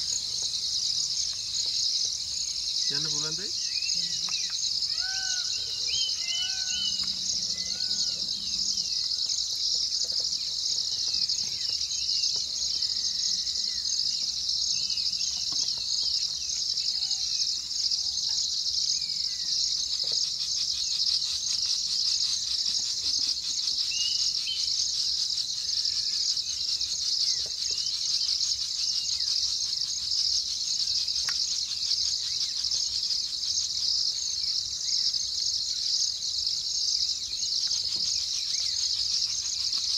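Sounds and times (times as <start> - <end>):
insects shrilling: 0.0 - 12.0
birds chirping: 0.0 - 18.0.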